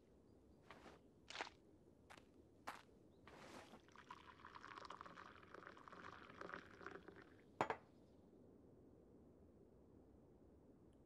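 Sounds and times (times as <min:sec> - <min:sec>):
liquid trickling into bowl: 0:03.8 - 0:07.4
bowl set down on wooden table: 0:07.6 - 0:07.8.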